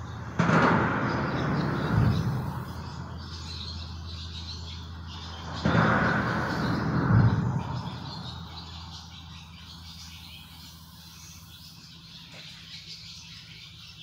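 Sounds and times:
highway traffic rumble: 0.0 - 14.0.

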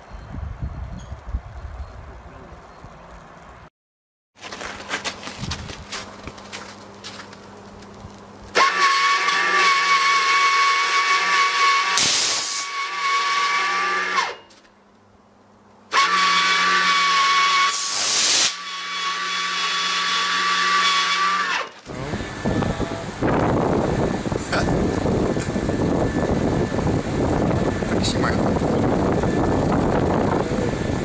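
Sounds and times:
high electrical whine: 5.4 - 14.7, 15.9 - 31.0
electrical arcing burst: 11.9 - 12.7, 17.7 - 18.6.

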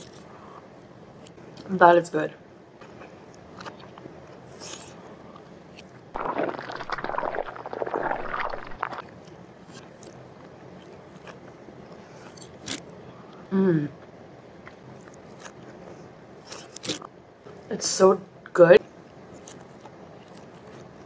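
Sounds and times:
person chewing spaghetti: 6.2 - 9.2, 19.3 - 21.0.

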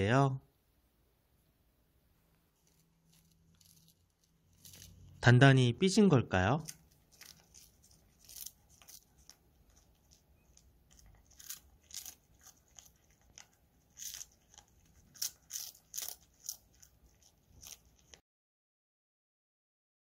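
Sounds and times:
cat crunching a dried fish treat: 2.5 - 5.2, 6.6 - 18.2.

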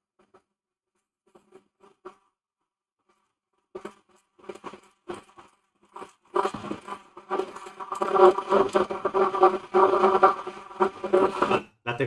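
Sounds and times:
stick blender buzzing: 6.0 - 11.6.

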